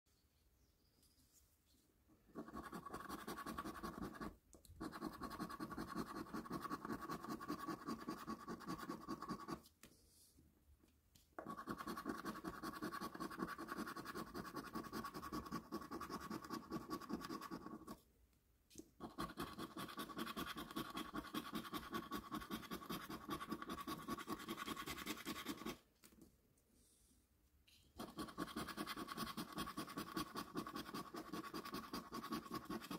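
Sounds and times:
coin scratching a scratchcard: 2.4s - 9.6s, 11.4s - 18.0s, 19.0s - 25.8s, 28.0s - 32.9s.

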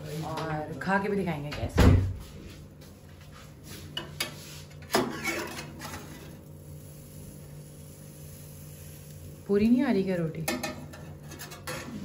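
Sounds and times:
metal spatula scraping oven tray: 3.9s - 6.4s, 10.5s - 12.0s.

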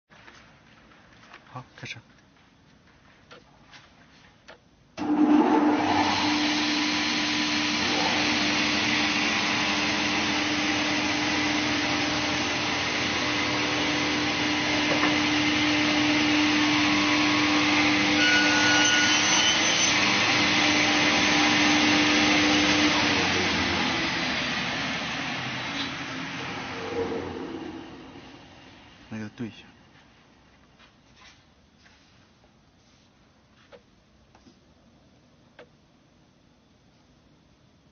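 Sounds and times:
panel saw running: 5.0s - 29.1s.

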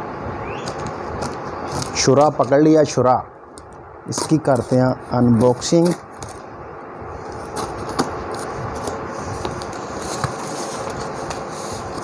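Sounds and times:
knife cutting tape and cardboard: 0.7s - 2.6s, 4.1s - 6.4s.

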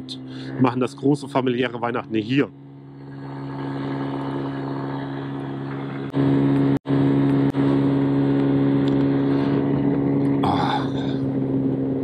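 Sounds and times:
scooter engine running: 2.0s - 12.0s
wind and road noise: 2.5s - 12.0s.

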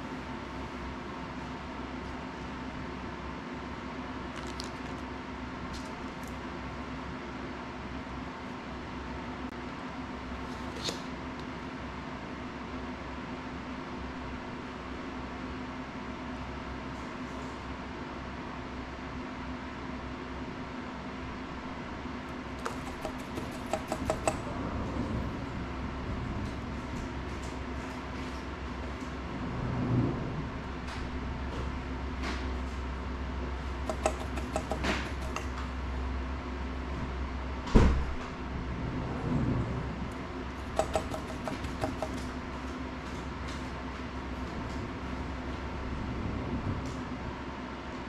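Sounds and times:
low room hum: 0.0s - 48.0s
tools clicking and tapping: 22.6s - 24.4s, 33.8s - 35.6s, 40.6s - 42.3s.

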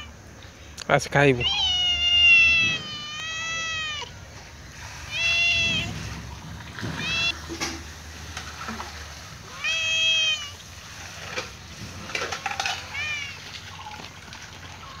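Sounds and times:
cat meowing: 0.0s - 0.2s, 1.4s - 7.6s, 9.4s - 10.8s, 12.4s - 14.0s.

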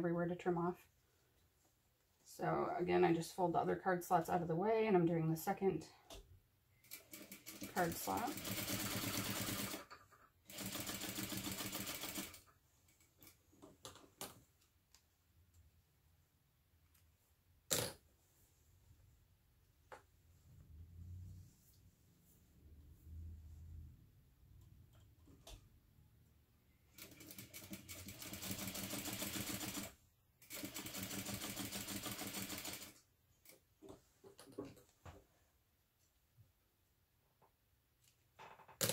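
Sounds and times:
sewing machine running: 7.0s - 9.9s, 10.5s - 12.4s, 27.0s - 29.9s, 30.5s - 32.9s.

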